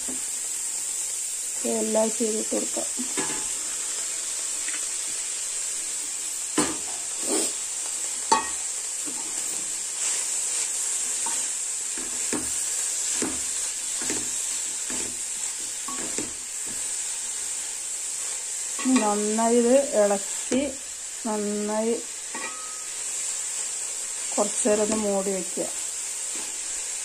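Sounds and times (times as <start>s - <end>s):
vegetables sizzling in pan: 0.0s - 27.0s
spoon scraping and knocking pan: 3.0s - 3.6s, 8.3s - 9.7s, 11.0s - 17.0s, 22.3s - 23.0s, 24.8s - 25.2s.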